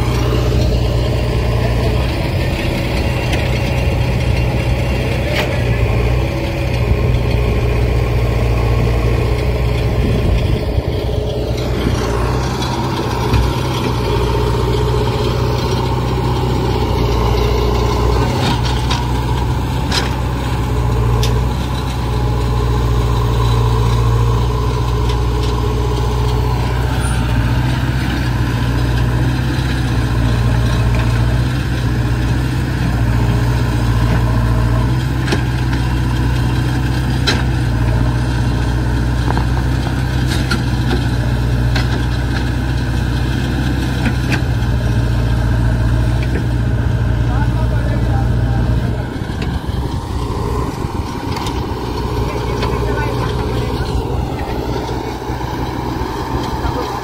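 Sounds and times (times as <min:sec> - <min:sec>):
heavy diesel engine running: 0:00.0 - 0:57.0.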